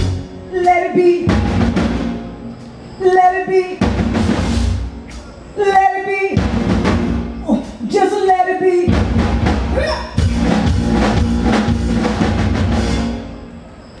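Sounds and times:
drums playing: 0:00.0 - 0:02.4, 0:03.8 - 0:05.4, 0:06.3 - 0:13.4
live band playing: 0:00.0 - 0:13.9.

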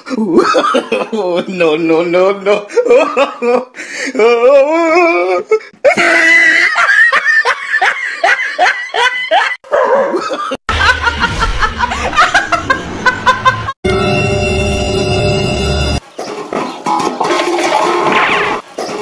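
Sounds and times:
hearty laughter: 0:00.1 - 0:01.5, 0:02.5 - 0:13.8
woman laughing loudly: 0:05.8 - 0:13.8
low rumble: 0:10.7 - 0:13.7.

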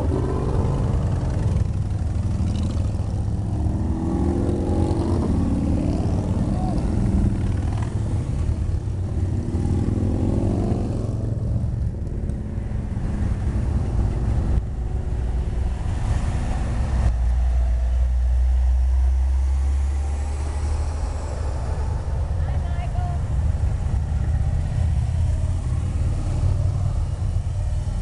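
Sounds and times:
pickup truck driving past: 0:00.0 - 0:22.4
deep low rumble: 0:00.0 - 0:28.0
motorcycle passing: 0:00.0 - 0:28.0
vehicles passing by: 0:00.0 - 0:28.0.

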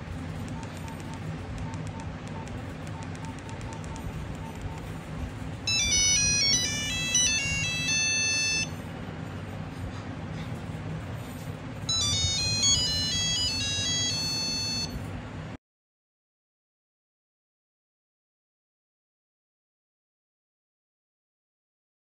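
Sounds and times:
low steady hum: 0:00.0 - 0:15.6
monophonic phone ringtone beeps: 0:00.5 - 0:04.9, 0:05.7 - 0:08.8, 0:11.9 - 0:15.0.

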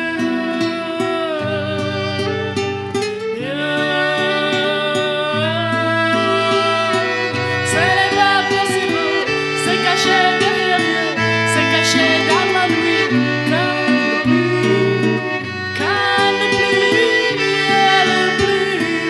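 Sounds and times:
sliding melody: 0:05.8 - 0:19.0.

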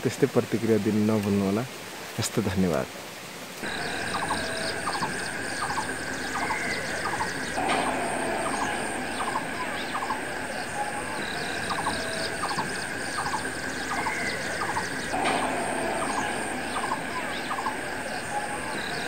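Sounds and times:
high-pitched drone: 0:06.5 - 0:19.0.

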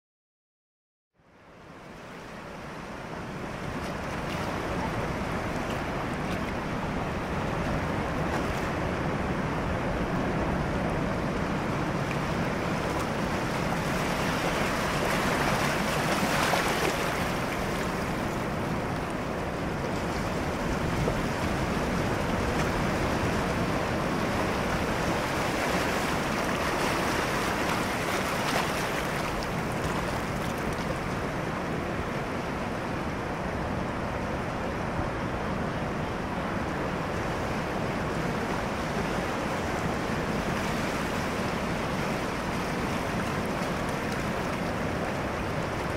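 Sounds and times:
wind: 0:01.1 - 0:45.9
small waves washing: 0:02.2 - 0:32.7.

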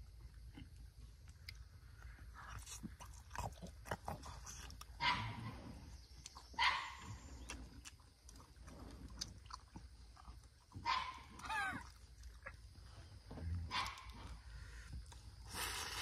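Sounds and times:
dog barking: 0:05.0 - 0:05.5, 0:06.6 - 0:07.1, 0:10.8 - 0:11.8, 0:13.7 - 0:14.3.

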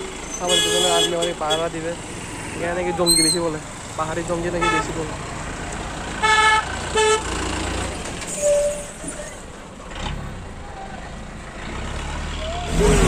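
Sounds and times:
jeep engines running: 0:00.0 - 0:13.0
vehicle horn toots: 0:00.4 - 0:01.7, 0:06.2 - 0:07.2.

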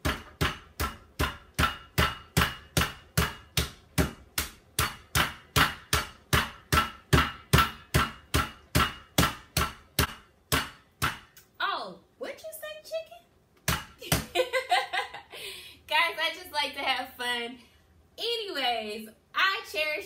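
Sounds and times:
meat mallet pounding: 0:00.0 - 0:11.4, 0:13.6 - 0:14.3.

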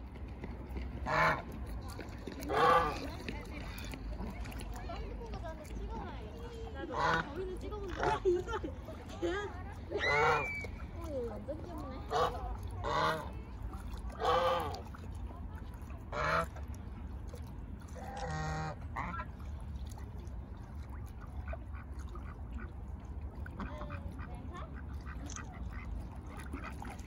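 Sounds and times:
mallard ducks calling: 0:01.0 - 0:04.7, 0:06.8 - 0:08.6, 0:09.9 - 0:10.9, 0:12.0 - 0:15.0, 0:16.1 - 0:16.7, 0:18.0 - 0:19.4, 0:23.5 - 0:27.0
geese honking: 0:02.5 - 0:03.0, 0:10.0 - 0:10.7, 0:12.1 - 0:13.4, 0:14.2 - 0:14.8, 0:18.2 - 0:19.3.

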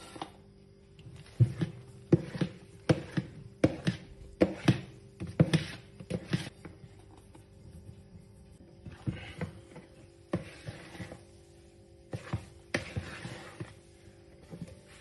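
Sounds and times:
spatula folding thick batter: 0:01.0 - 0:15.0.

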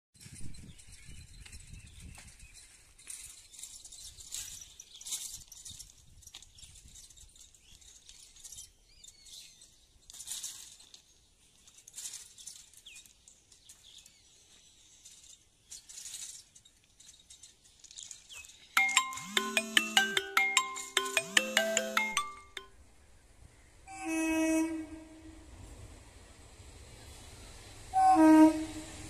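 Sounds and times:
faint rustling hiss: 0:02.3 - 0:18.8, 0:24.8 - 0:29.0.

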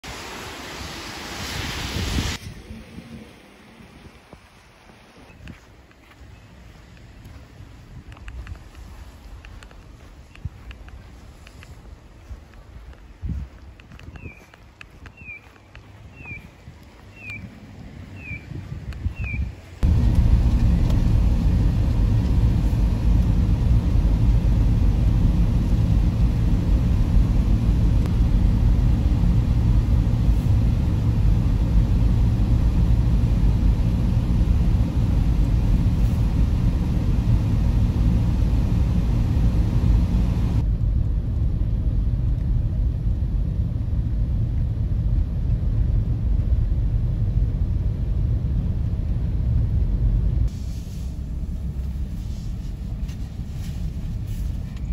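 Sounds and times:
high hiss: 0:00.0 - 0:05.3, 0:50.5 - 0:52.6
car tyres and engine rumble: 0:02.0 - 0:54.9.

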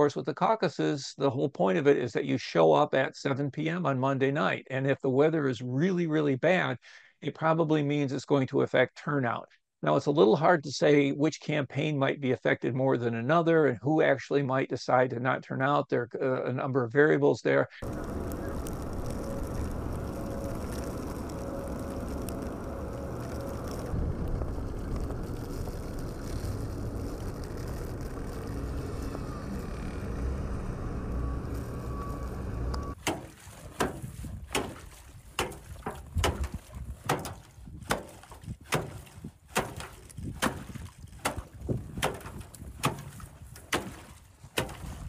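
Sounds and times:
outdoor rumble: 0:17.8 - 0:40.5
axe chopping ice: 0:33.0 - 0:44.9.

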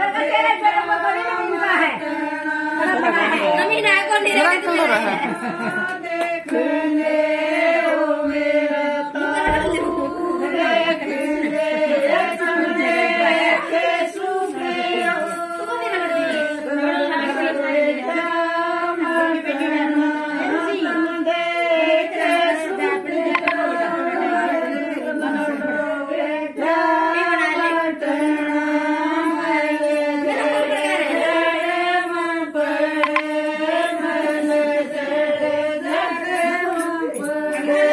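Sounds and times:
women singing folk song: 0:00.0 - 0:37.9.

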